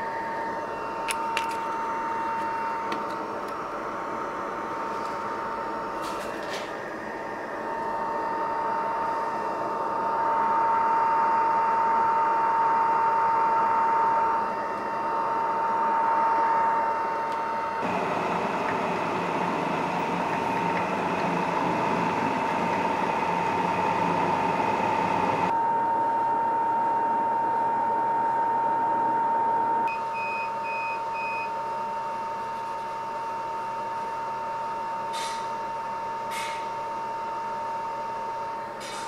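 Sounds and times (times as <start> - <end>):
heavier machine running noise: 0.0 - 26.8
machine whining: 0.0 - 34.8.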